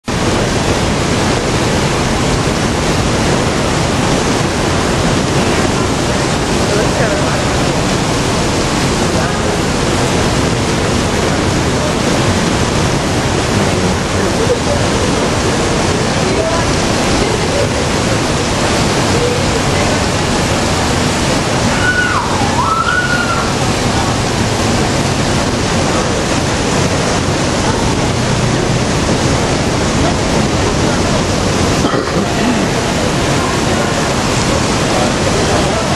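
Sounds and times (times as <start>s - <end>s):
artificial rain pouring: 0.0s - 35.9s
voice sliding in pitch: 13.4s - 15.0s.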